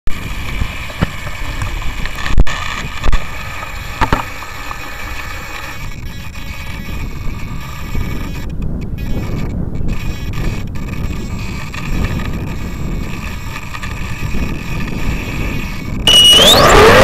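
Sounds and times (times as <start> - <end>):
wind buffeting the microphone: 0.1 - 17.0
steady higher hum: 16.1 - 17.0.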